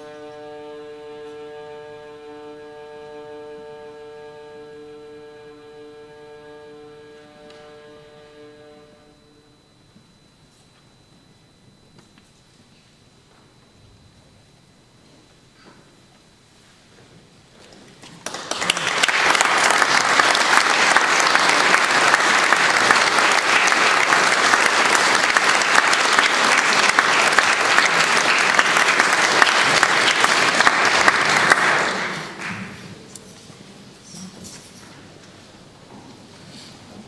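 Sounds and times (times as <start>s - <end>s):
audience applauding: 18.0s - 32.9s.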